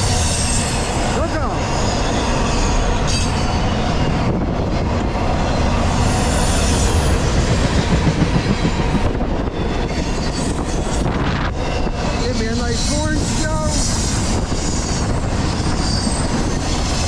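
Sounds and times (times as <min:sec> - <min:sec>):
train wheels rumbling on rails: 0:00.0 - 0:17.0
high wheel squeal: 0:09.8 - 0:17.0.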